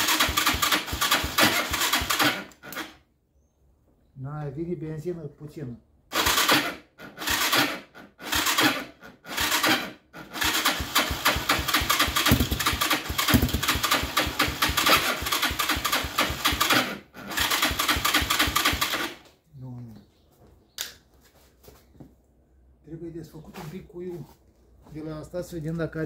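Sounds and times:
electric starter cranking engine: 0.0s - 3.0s, 6.1s - 19.2s.

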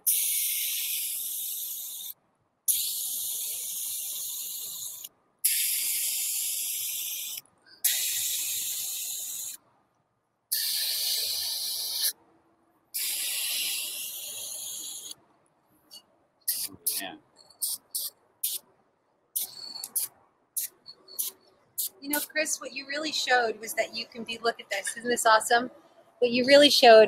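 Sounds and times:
spray paint can hissing: 0.0s - 9.6s, 10.5s - 12.2s, 12.9s - 15.2s, 16.5s - 18.6s, 19.4s - 22.4s.

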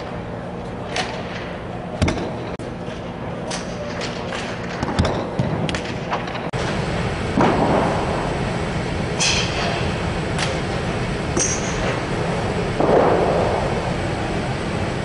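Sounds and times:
steady background rumble: 0.0s - 15.0s.

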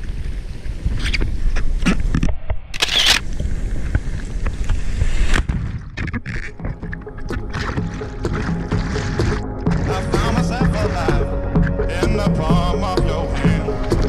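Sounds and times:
surf churning and splashing: 3.3s - 14.0s
loud splash: 7.4s - 11.2s.

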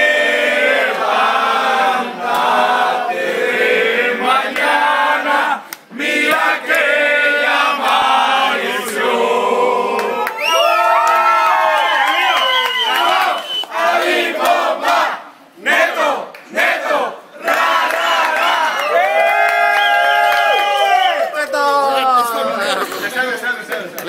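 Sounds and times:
group singing birthday song: 0.0s - 10.3s, 12.9s - 18.8s.

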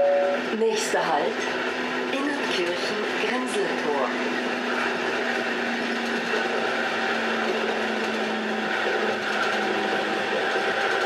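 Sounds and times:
train motor whine: 0.0s - 11.0s
train rumble and rattle: 0.0s - 11.0s.

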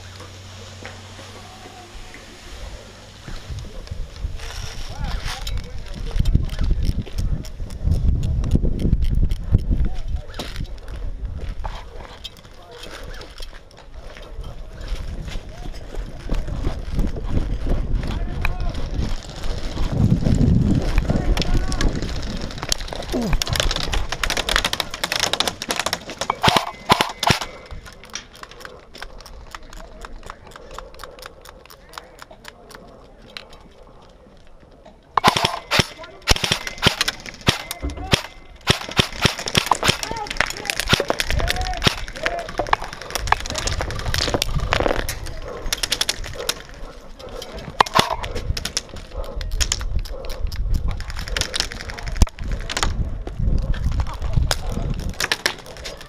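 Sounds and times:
wind buffeting microphone: 2.4s - 12.2s, 12.9s - 24.7s, 35.0s - 56.0s
sharp clicks and rattles: 18.1s - 34.1s, 35.2s - 56.0s
airsoft guns firing: 23.2s - 27.9s, 35.2s - 45.1s, 47.8s - 49.0s.

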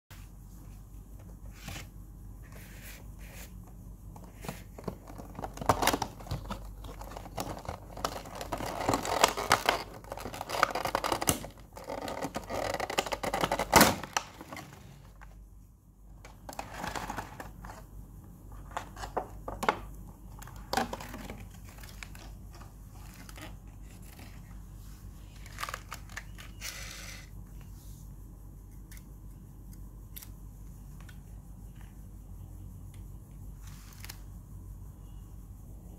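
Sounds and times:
plastic packaging crinkling: 4.8s - 14.6s.

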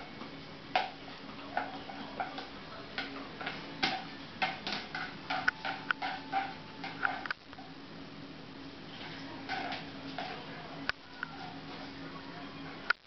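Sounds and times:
faint steady hum: 0.0s - 13.0s
toy tapping on tile floor: 1.6s - 7.4s.

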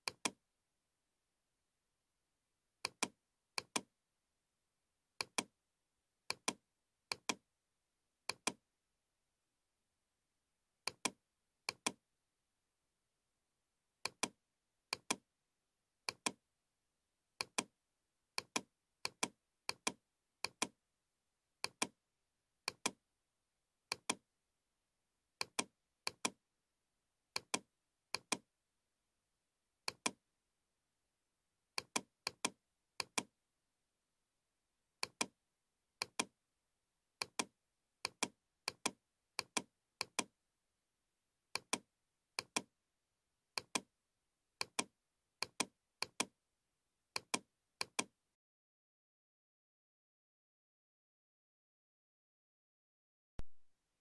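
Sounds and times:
computer mouse clicks: 0.0s - 0.4s, 2.8s - 3.9s, 5.2s - 5.5s, 6.3s - 7.4s, 8.3s - 8.6s, 10.9s - 12.0s, 14.0s - 15.2s, 16.1s - 16.4s, 17.4s - 17.7s, 18.4s - 20.8s, 21.6s - 21.9s, 22.7s - 23.0s, 23.9s - 24.2s, 25.4s - 26.4s, 27.4s - 28.4s, 29.9s - 30.2s, 31.8s - 33.3s, 35.0s - 35.3s, 36.0s - 36.3s, 37.2s - 40.3s, 41.5s - 41.8s, 42.4s - 42.7s, 43.6s - 43.9s, 44.6s - 46.3s, 47.2s - 48.1s, 53.4s - 53.6s.

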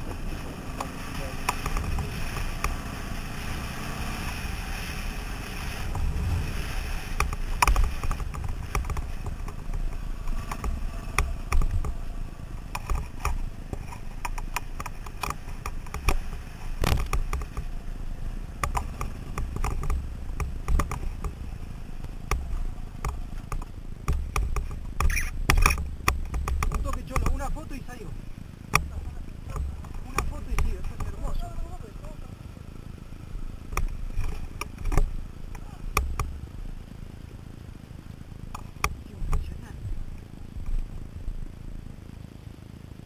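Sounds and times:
dirt bike engine rumble: 0.0s - 43.0s
knocks and rattles from bumps: 22.3s - 27.7s.

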